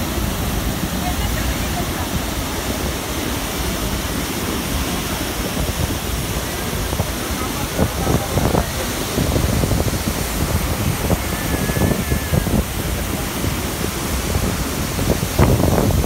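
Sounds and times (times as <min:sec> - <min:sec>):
waterfall rushing: 0:00.0 - 0:16.0
wind buffeting microphone: 0:00.0 - 0:16.0.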